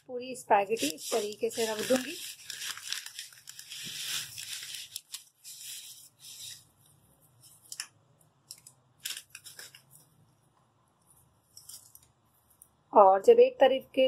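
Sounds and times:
plastic packet crinkling: 0:00.7 - 0:06.6, 0:08.5 - 0:10.1.

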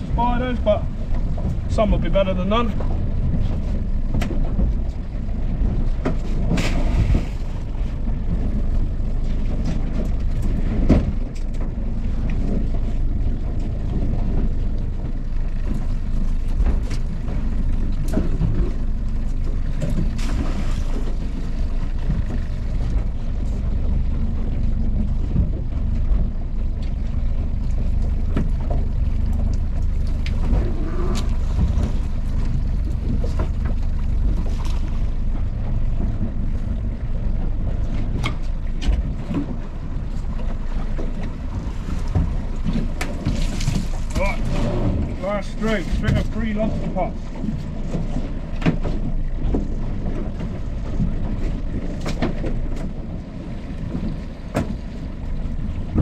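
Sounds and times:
outboard motor running: 0:00.0 - 0:56.0
wind buffeting microphone: 0:00.0 - 0:56.0.

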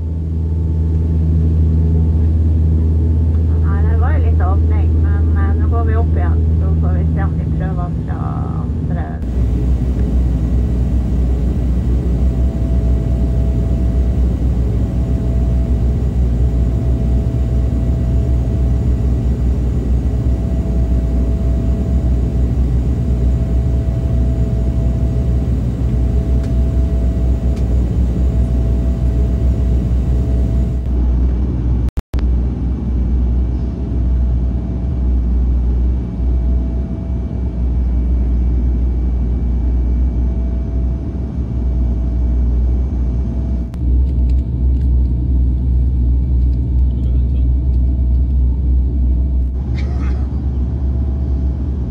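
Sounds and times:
turboprop engines droning: 0:00.0 - 0:51.9.

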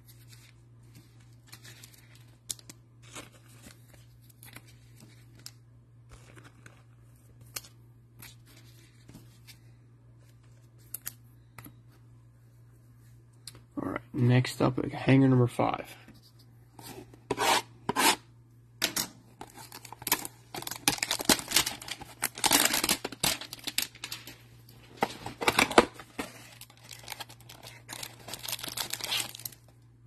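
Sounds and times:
cardboard scraping and rubbing: 0:16.8 - 0:18.2.

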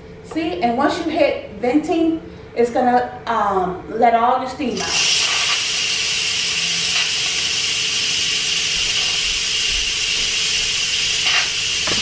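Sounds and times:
steam hissing from valve: 0:04.7 - 0:12.0.

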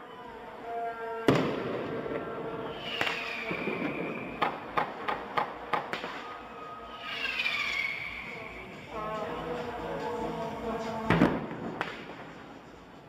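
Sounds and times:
falling firework whistle: 0:01.3 - 0:05.0, 0:05.8 - 0:08.8
firework bang: 0:01.3 - 0:06.4, 0:11.1 - 0:12.3
firework cracks: 0:01.3 - 0:08.3, 0:11.1 - 0:12.6.

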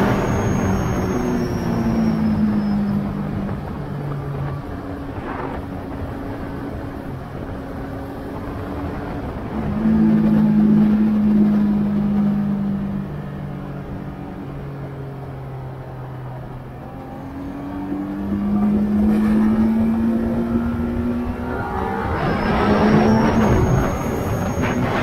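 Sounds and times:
motorcycle engine: 0:15.8 - 0:25.0.

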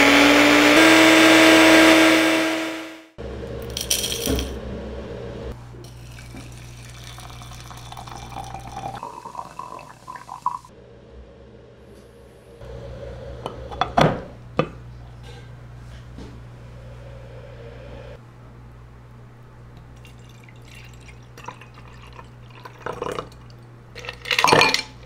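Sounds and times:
hot water pouring into teapot: 0:05.9 - 0:10.7, 0:20.0 - 0:23.5.

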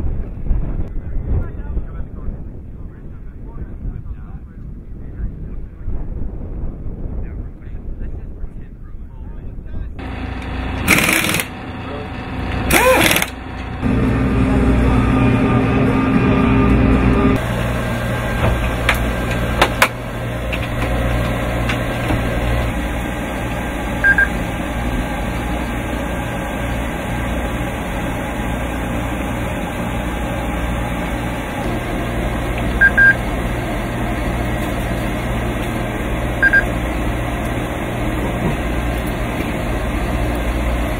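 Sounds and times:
low engine hum: 0:00.0 - 0:40.9
high double beeps: 0:24.0 - 0:24.4, 0:32.8 - 0:33.2, 0:36.4 - 0:36.7.

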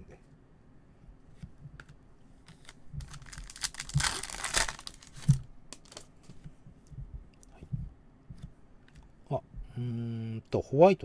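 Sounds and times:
card pack wrapper tearing: 0:02.5 - 0:06.1.

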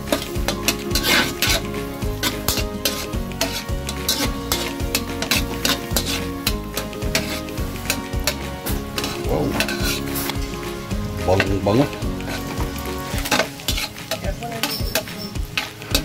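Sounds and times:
butter sizzling in a wok: 0:00.0 - 0:16.0
metal spatula scraping a wok: 0:00.0 - 0:16.0.

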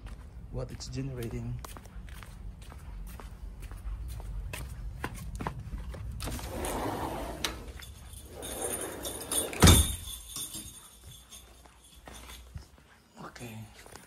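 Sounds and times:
sliding glass door rolling: 0:06.2 - 0:09.8
glass door banging shut: 0:08.6 - 0:10.1.

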